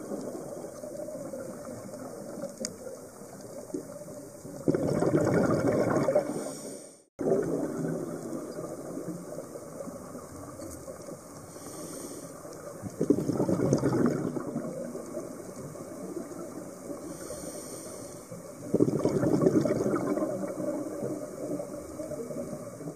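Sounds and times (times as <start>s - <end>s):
exhaled bubbles underwater: 0.0s - 6.6s, 7.2s - 11.8s, 12.4s - 22.9s
regulator hiss: 11.4s - 12.6s, 17.0s - 18.5s.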